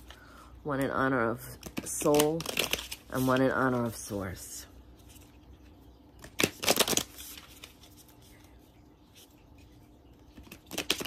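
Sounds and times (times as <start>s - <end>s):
faint steady hum: 0.0s - 11.0s
cards being shuffled: 1.5s - 4.0s, 6.2s - 8.5s, 9.1s - 11.0s.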